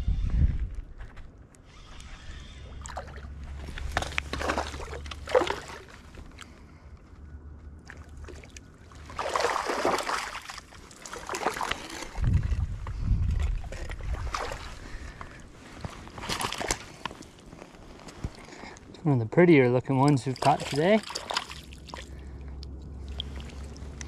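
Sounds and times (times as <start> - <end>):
low rumble on microphone: 0.0 - 5.3, 12.0 - 15.8
fish splashing in water: 2.7 - 6.3, 7.8 - 12.2, 14.0 - 15.2, 20.4 - 24.0.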